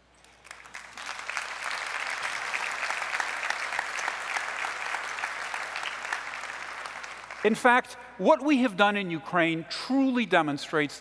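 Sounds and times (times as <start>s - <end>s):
audience applauding: 0.2s - 7.6s.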